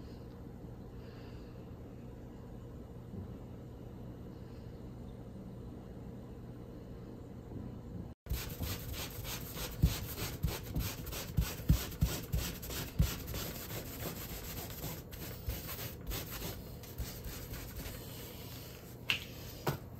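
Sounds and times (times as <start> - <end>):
wet wipe scrubbing paper: 8.3 - 19.0.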